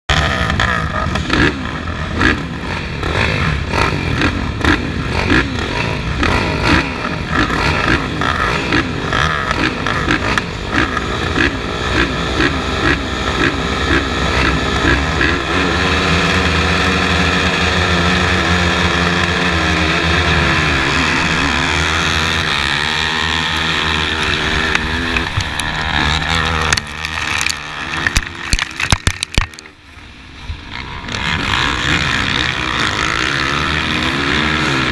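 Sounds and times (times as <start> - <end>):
racing quad engines revving: 0.1 - 34.9.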